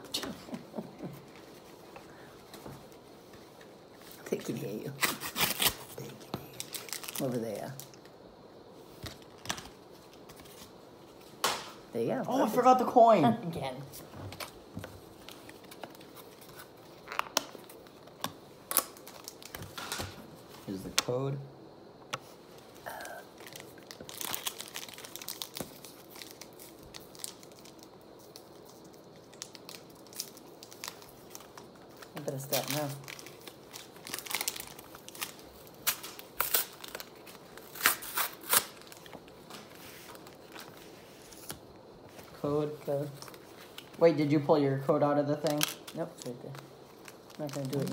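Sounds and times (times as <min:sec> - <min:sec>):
wrapper crinkling: 0:04.2 - 0:08.1, 0:14.3 - 0:20.8, 0:22.6 - 0:41.6, 0:45.3 - 0:47.9
cards rustling: 0:13.9 - 0:21.2, 0:45.3 - 0:47.9.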